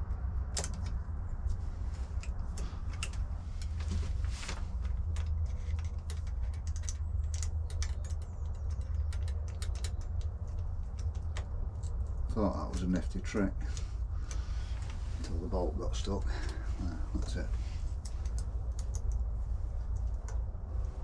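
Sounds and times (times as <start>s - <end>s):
steady low hum: 0.0s - 21.0s
small metallic clicks: 4.8s - 15.0s, 18.0s - 19.3s.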